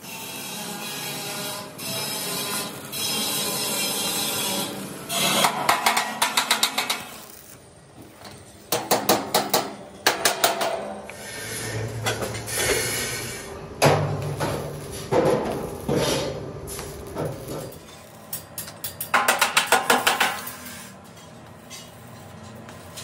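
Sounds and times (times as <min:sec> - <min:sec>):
hammer on sheet steel: 0:05.2 - 0:07.1, 0:08.7 - 0:11.0, 0:18.6 - 0:20.9.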